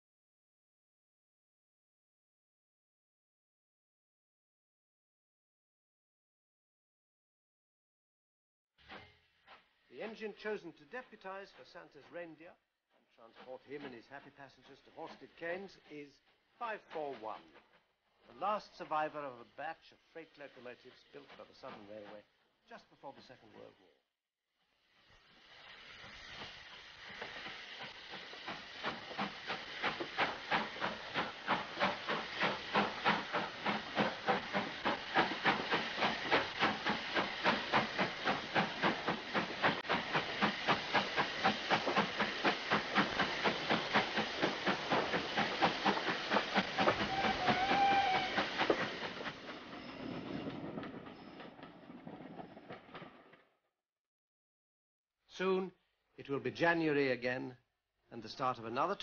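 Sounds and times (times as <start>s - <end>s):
steam locomotive exhaust beats: 13.2s - 23.8s, 25.1s - 53.0s.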